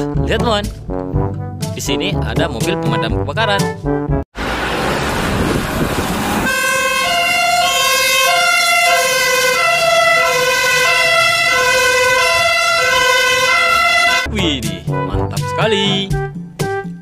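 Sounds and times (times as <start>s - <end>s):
rushing noise: 4.4s - 7.8s
fire engine two-tone siren: 4.4s - 14.3s.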